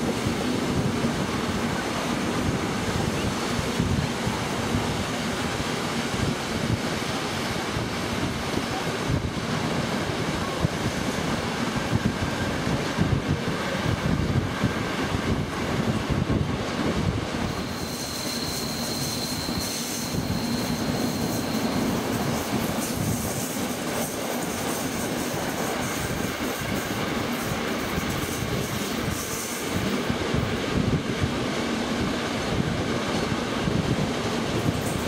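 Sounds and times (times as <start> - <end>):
train wheels rumbling on rails: 0.0 - 35.0
high wheel squeal: 17.4 - 26.9.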